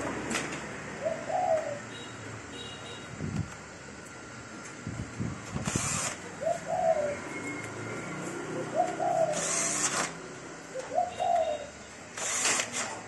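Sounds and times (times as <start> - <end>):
pigeons cooing: 1.0 - 1.9, 6.2 - 9.8, 10.6 - 11.8.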